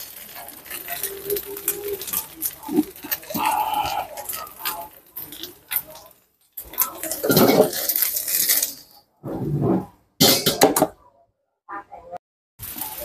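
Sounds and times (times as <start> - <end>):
spatula scraping and clanking wok: 0.0 - 8.9.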